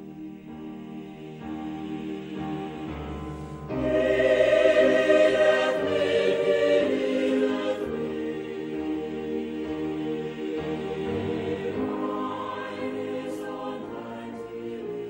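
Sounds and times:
choir singing held chords: 0:00.0 - 0:15.0.

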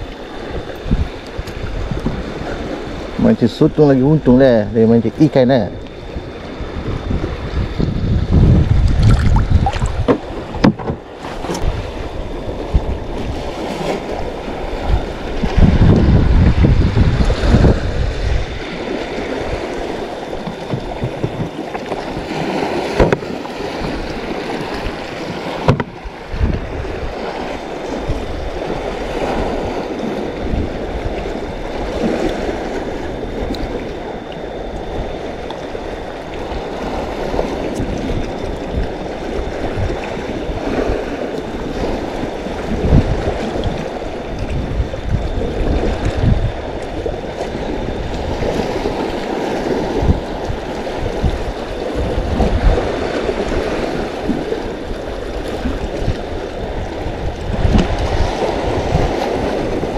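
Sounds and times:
water lapping against kayak hull: 0:00.0 - 0:59.9
wind buffeting microphone: 0:00.0 - 0:59.9
sharp knocks: 0:10.0 - 0:11.0.

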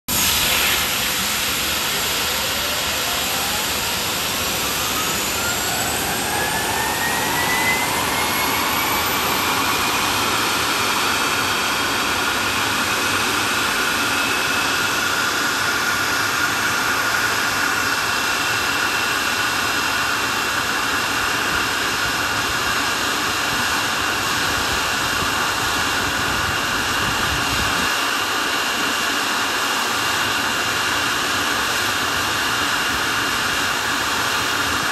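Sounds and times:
rush of air: 0:00.1 - 0:16.8
jet engine whine spooling up: 0:00.1 - 0:34.9.

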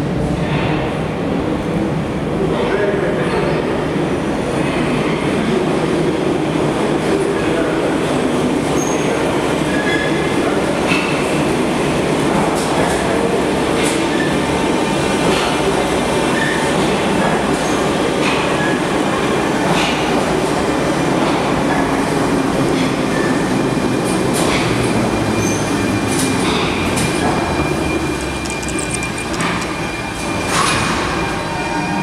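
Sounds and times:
metro train rumble: 0:00.0 - 0:32.0
wheels clicking over rail joints: 0:28.1 - 0:30.0.

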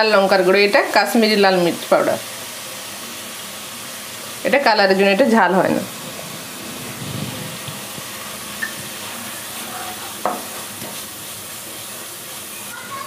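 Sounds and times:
masala sizzling in oil: 0:00.0 - 0:13.0
spatula knocking against pan: 0:10.2 - 0:10.9.

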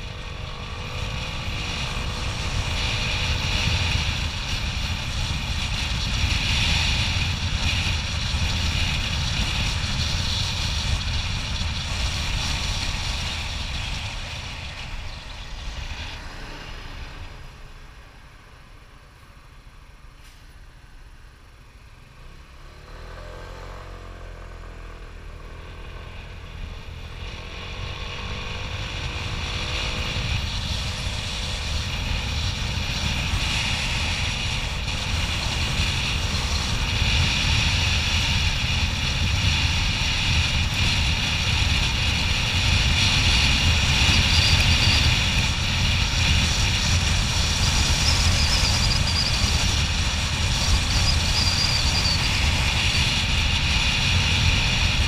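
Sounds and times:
motorbike engine accelerating: 0:00.0 - 0:17.8
wind rush: 0:00.0 - 0:18.8, 0:24.9 - 0:55.0
road noise: 0:00.0 - 0:55.0.

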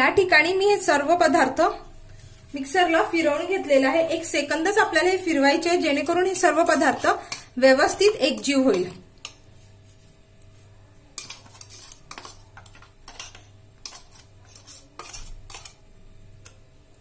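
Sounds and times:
metal spoon scraping a steel jar: 0:11.2 - 0:15.8.

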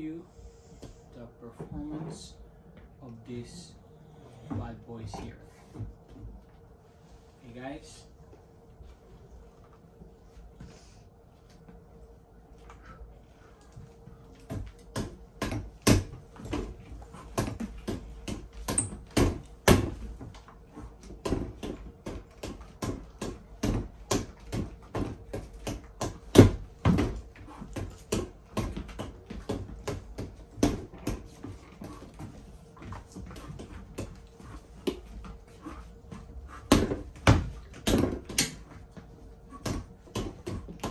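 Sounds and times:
fists punching a punching bag: 0:14.5 - 0:20.4, 0:21.0 - 0:32.2, 0:36.5 - 0:40.9.

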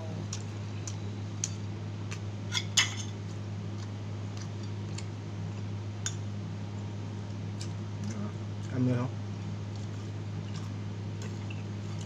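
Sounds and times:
steady low hum: 0:00.0 - 0:12.0
person chewing: 0:03.2 - 0:06.2, 0:09.7 - 0:12.0.

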